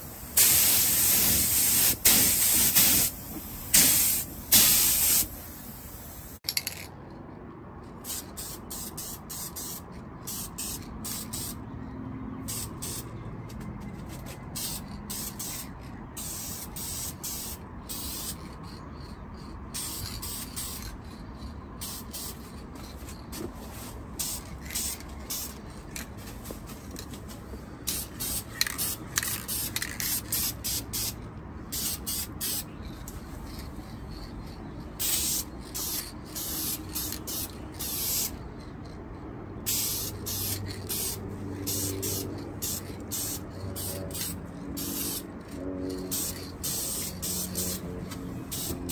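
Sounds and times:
aerosol spray can bursts: 0.0s - 6.4s, 35.0s - 38.3s, 39.7s - 45.2s, 46.1s - 47.8s.

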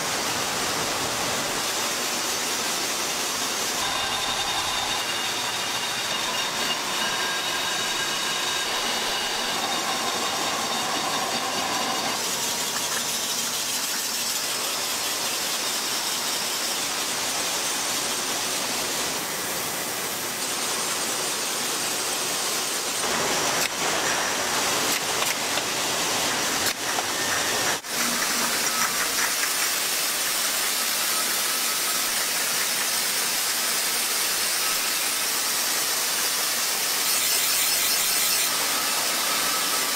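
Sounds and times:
conveyors and filling machines hissing: 0.0s - 39.9s
high whining tones: 3.7s - 12.2s.

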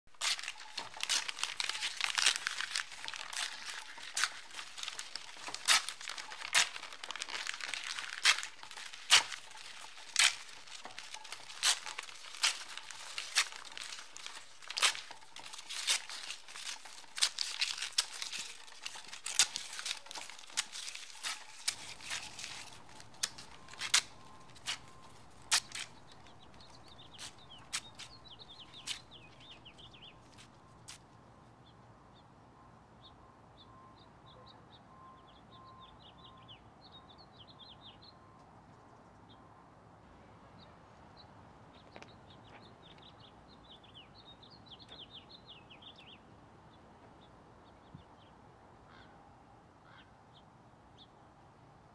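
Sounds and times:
paper rustling and crinkling: 0.1s - 31.0s
faint bird chirps: 32.1s - 39.6s.

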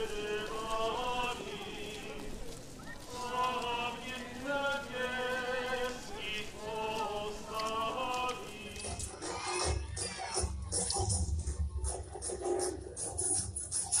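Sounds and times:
person singing slow melody: 0.0s - 9.3s.

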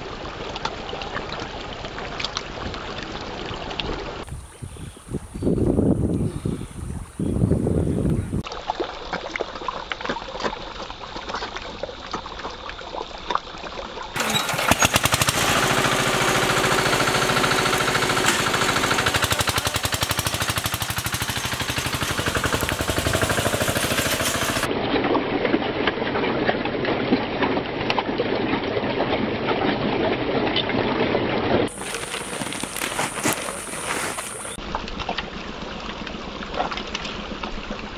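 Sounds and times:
fish splashing at water surface: 8.4s - 24.7s
small engine chugging: 14.2s - 24.7s, 31.7s - 34.6s.

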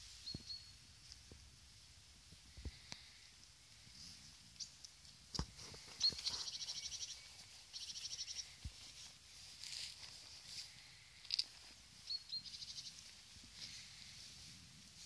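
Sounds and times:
songbird trilling: 5.9s - 8.5s, 12.0s - 13.0s.

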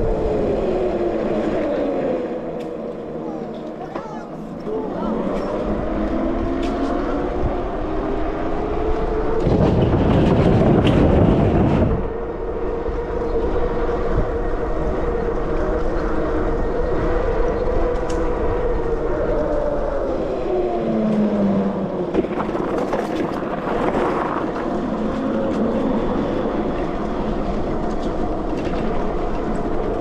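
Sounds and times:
wind noise: 0.0s - 3.1s, 4.6s - 30.0s
electric bike motor whine: 12.2s - 22.0s.

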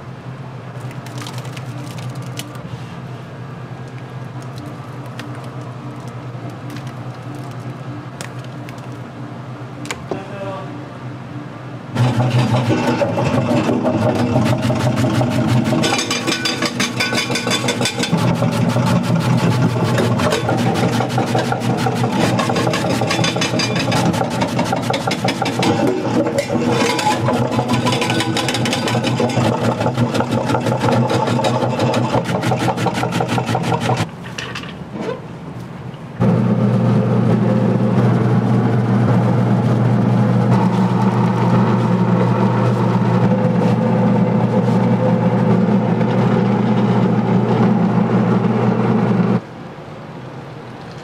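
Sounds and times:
machine motor rattling: 12.0s - 34.5s.

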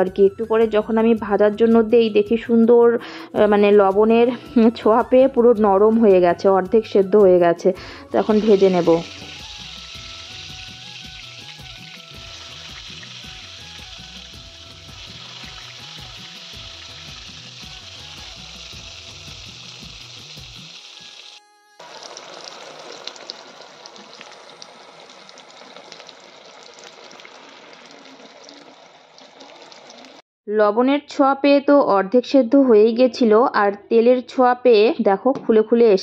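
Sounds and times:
soft background music with a beat: 0.0s - 21.7s
vegetables sizzling in hot oil: 8.2s - 30.2s.

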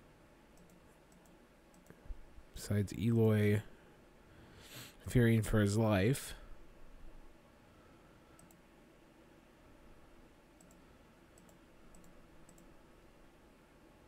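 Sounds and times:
faint mouse clicks: 0.5s - 2.0s, 8.3s - 8.7s, 10.6s - 12.8s.

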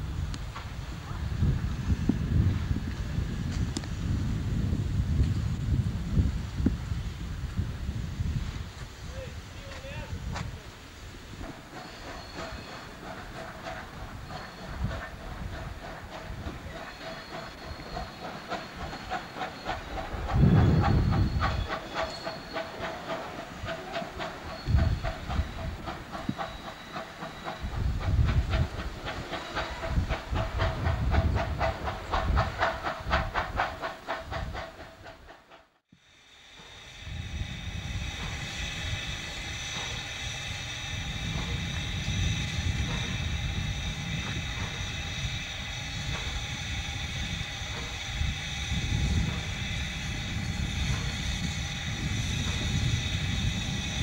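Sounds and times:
steam locomotive chuffing: 0.0s - 54.0s.

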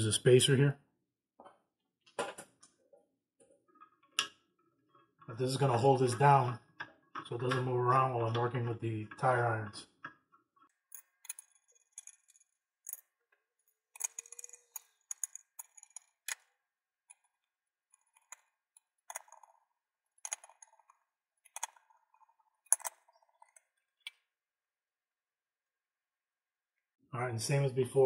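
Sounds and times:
sharp metal clicks and clinks: 10.9s - 13.1s, 13.9s - 16.5s, 18.0s - 23.7s.

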